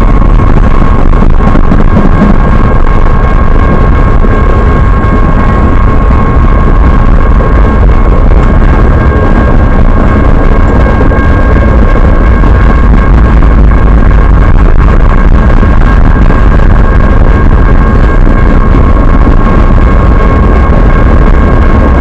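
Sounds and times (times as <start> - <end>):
train wheels rumbling on rails: 0.0 - 13.7
high-pitched ringing tone: 0.0 - 22.0.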